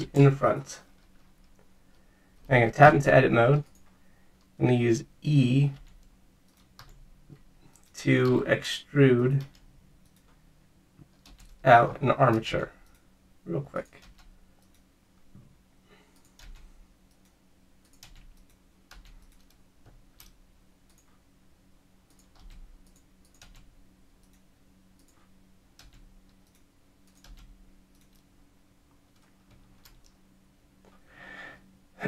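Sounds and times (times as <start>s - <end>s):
faint low hum: 0.0s - 32.0s
computer keyboard and mouse clicks: 5.8s - 7.0s, 11.0s - 11.6s, 16.2s - 21.2s, 22.1s - 24.4s, 25.0s - 28.2s, 29.1s - 30.2s.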